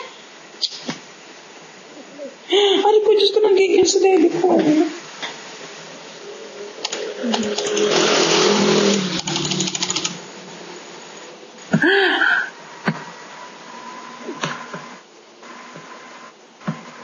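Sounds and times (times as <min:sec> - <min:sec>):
rapid clicks: 0:06.8 - 0:10.3.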